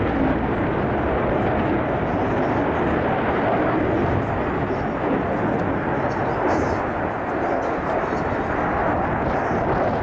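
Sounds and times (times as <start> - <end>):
fighter jet noise: 0.0 - 10.0.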